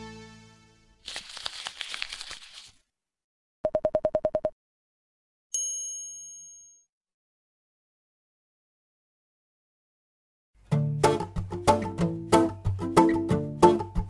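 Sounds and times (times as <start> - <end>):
high ring: 5.6 - 6.9.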